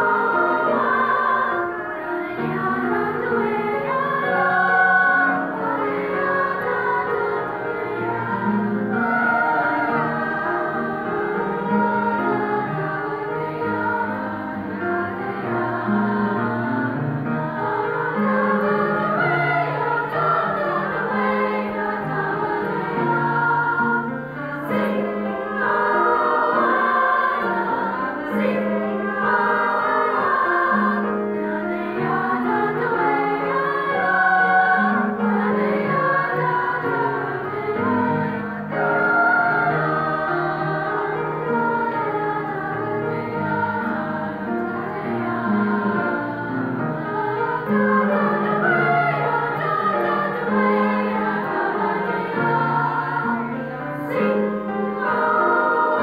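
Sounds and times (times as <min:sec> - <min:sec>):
mixed choir singing: 0:00.0 - 0:56.0.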